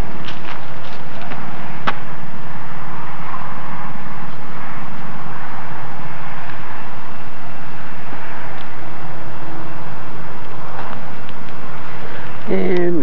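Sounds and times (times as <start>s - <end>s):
engine-like drone: 0.0s - 13.0s.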